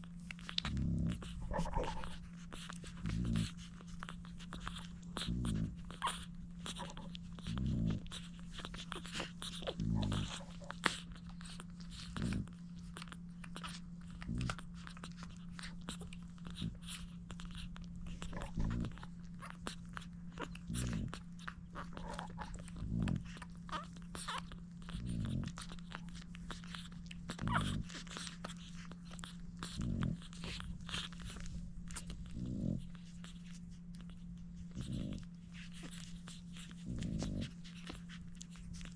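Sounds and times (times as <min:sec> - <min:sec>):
puppies suckling with wet smacks: 0:00.0 - 0:38.9
steady low hum: 0:00.0 - 0:38.9.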